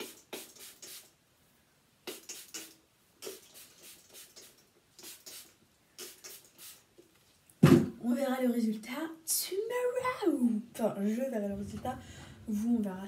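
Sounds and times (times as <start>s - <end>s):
spray bottle short hisses: 2.1s - 6.8s.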